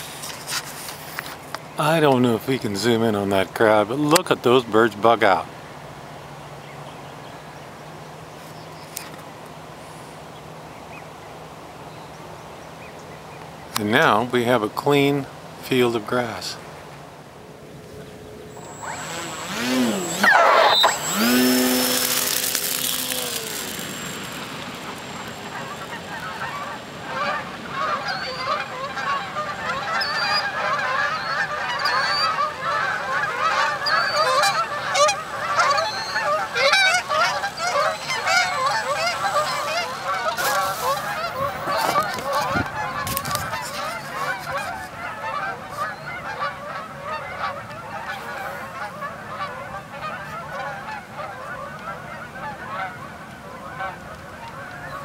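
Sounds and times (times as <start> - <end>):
loud sweeping whine: 17.4 - 30.5, 34.2 - 42.3
geese honking: 18.5 - 55.0.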